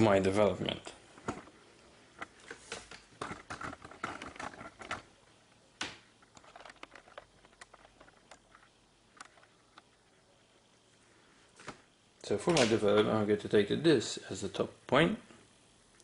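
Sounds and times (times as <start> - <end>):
drawing instruments clicking and scraping: 2.2 - 5.2, 6.2 - 9.9.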